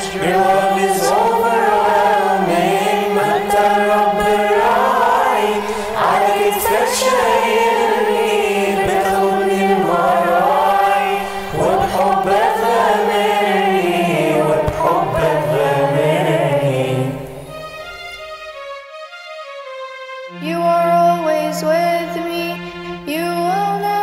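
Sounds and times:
mixed choir singing a hymn: 0:00.0 - 0:17.6.

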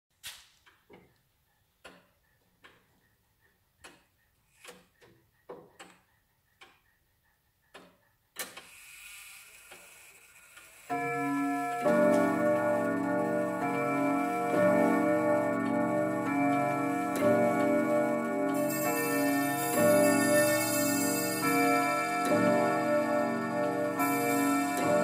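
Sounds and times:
pendulum clock ticking: 0:00.6 - 0:25.0
clock chime ringing: 0:10.9 - 0:25.0.

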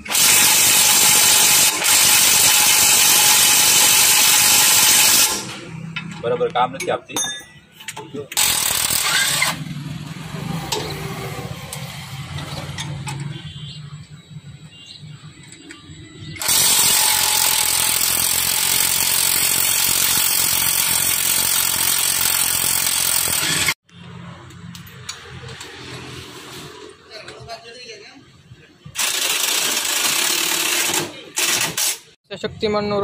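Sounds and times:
impact wrench running: 0:00.0 - 0:05.8, 0:08.4 - 0:12.6, 0:16.4 - 0:23.8, 0:29.0 - 0:32.2.

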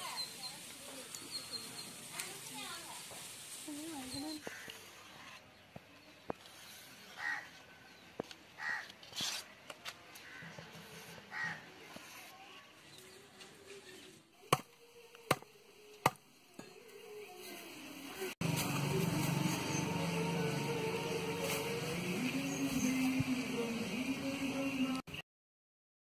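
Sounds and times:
crows cawing: 0:07.2 - 0:07.5, 0:08.6 - 0:09.0, 0:10.2 - 0:10.6, 0:11.3 - 0:11.7.

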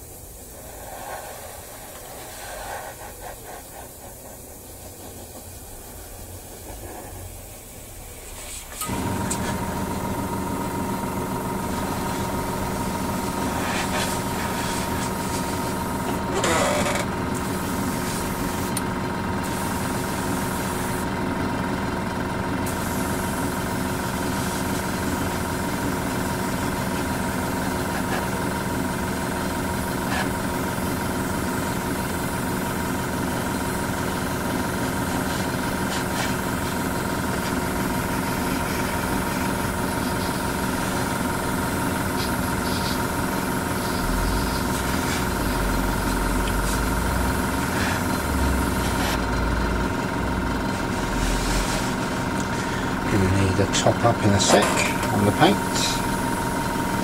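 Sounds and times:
airbrush spraying hiss: 0:00.0 - 0:07.2, 0:11.3 - 0:18.8, 0:19.4 - 0:21.1, 0:22.6 - 0:49.2
airbrush compressor motor hum: 0:08.8 - 0:57.0.

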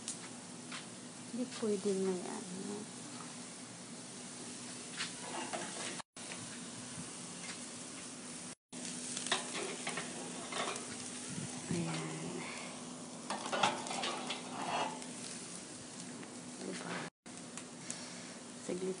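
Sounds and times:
meat sizzling on grill: 0:00.0 - 0:19.0
metal skewers clinking on grate: 0:09.2 - 0:11.0, 0:13.3 - 0:15.1.

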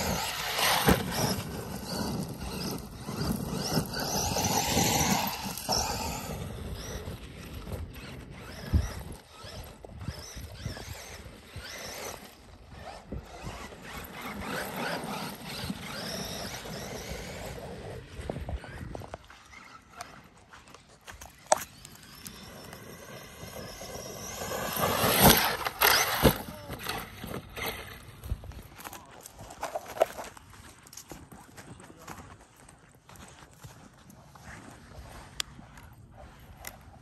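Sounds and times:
electric motor whining: 0:00.0 - 0:20.3, 0:21.2 - 0:28.5.

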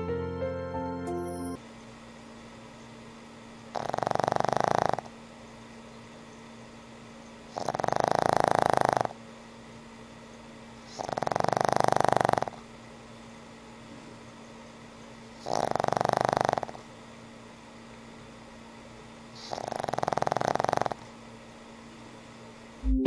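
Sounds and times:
dog snoring: 0:03.7 - 0:05.1, 0:07.4 - 0:09.2, 0:10.8 - 0:12.7, 0:15.4 - 0:16.9, 0:19.3 - 0:21.2.

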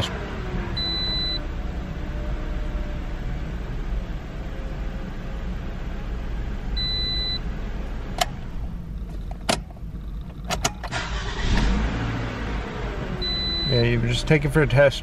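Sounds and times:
car engine running: 0:00.0 - 0:15.0
short beep: 0:00.8 - 0:01.4, 0:06.8 - 0:07.4, 0:13.2 - 0:13.8
ignition switch clicks: 0:08.1 - 0:11.7
starter cranking engine: 0:08.9 - 0:11.9.

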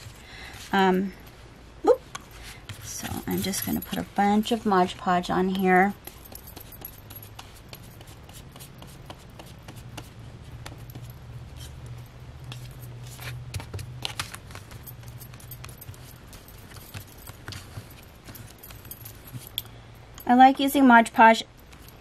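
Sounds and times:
low steady hum: 0:00.0 - 0:22.0
paintbrush scraping on card: 0:06.0 - 0:11.9
card being handled: 0:12.5 - 0:19.5.

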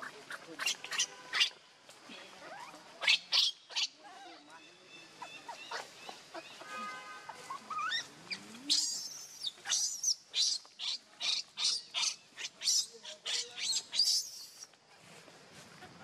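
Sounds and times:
monkey high-pitched squeals: 0:00.3 - 0:01.6, 0:02.4 - 0:04.0, 0:05.2 - 0:06.6, 0:07.4 - 0:14.6
monkey whining calls: 0:00.3 - 0:01.6, 0:02.4 - 0:04.0, 0:07.5 - 0:14.6.

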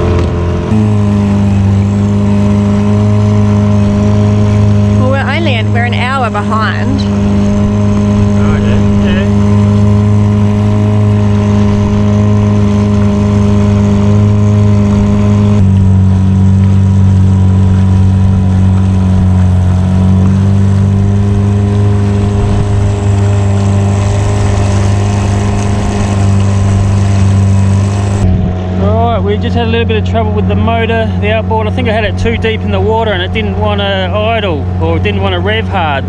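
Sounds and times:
outboard motor running: 0:00.0 - 0:36.0.

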